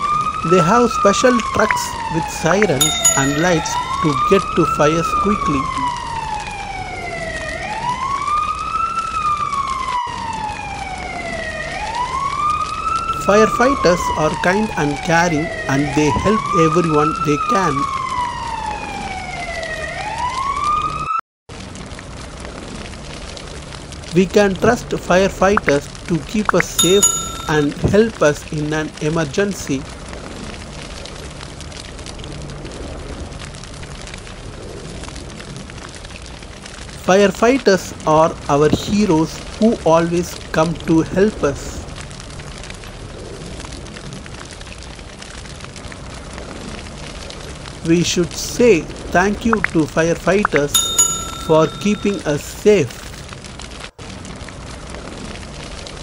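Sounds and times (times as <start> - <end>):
fire truck siren wailing: 0.0 - 21.2, 24.6 - 28.2
fire burning and crackling: 0.0 - 56.0.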